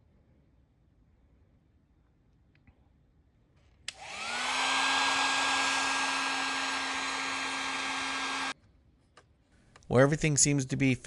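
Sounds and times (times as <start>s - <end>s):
heat gun fan rushing air: 3.9s - 8.6s
heat gun low hum and whine: 3.9s - 8.6s.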